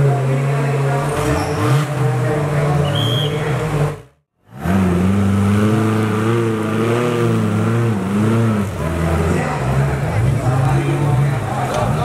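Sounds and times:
buggy engine revving: 0.0 - 12.0.

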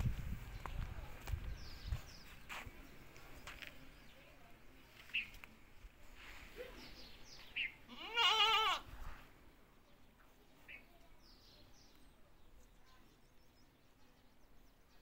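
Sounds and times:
goat bleating: 7.9 - 8.9.

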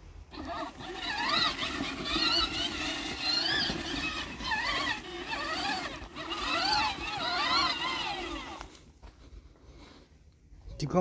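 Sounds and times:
electric motor whine: 0.3 - 8.8.

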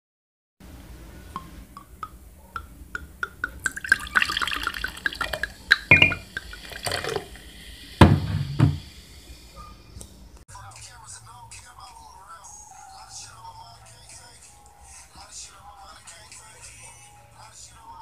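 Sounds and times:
liquid dripping into a glass: 1.4 - 7.5
liquid pouring into a glass: 3.0 - 7.7
loud knocks: 8.0 - 8.8.

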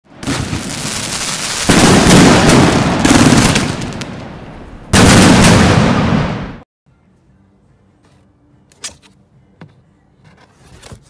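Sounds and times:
crackling firework sparks: 0.2 - 4.1
loud firework shot: 0.2 - 4.3, 4.9 - 6.6.

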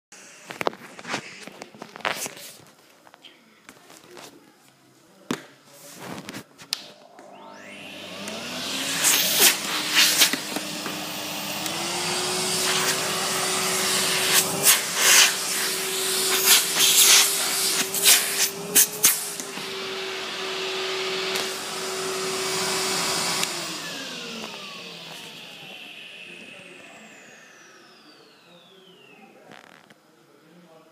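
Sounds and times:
vacuum cleaner whine and hiss: 0.2 - 2.4, 6.8 - 30.9.

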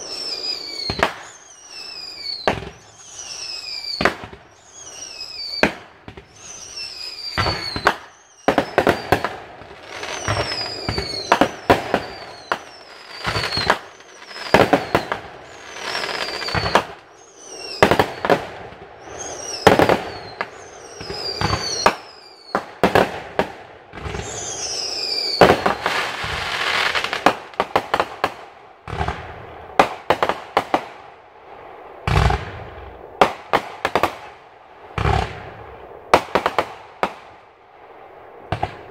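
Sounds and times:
fireworks hissing: 0.0 - 18.4, 24.0 - 27.4
falling firework whistle: 0.0 - 23.1, 24.0 - 28.0
fireworks bangs: 0.0 - 31.0, 31.9 - 38.9.

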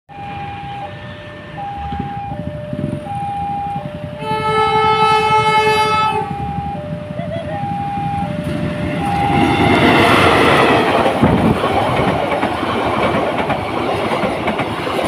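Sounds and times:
level-crossing alarm two-tone: 0.1 - 10.5
low rumble of traffic: 0.1 - 15.0
locomotive horn blast: 0.2 - 2.3, 4.2 - 6.8.

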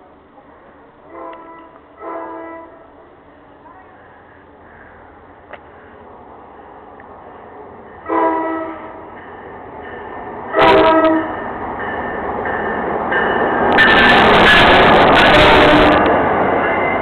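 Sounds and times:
train rumbling: 0.0 - 17.0
locomotive horn blasts: 1.1 - 2.9, 8.0 - 9.0, 10.5 - 11.4, 13.8 - 16.1.

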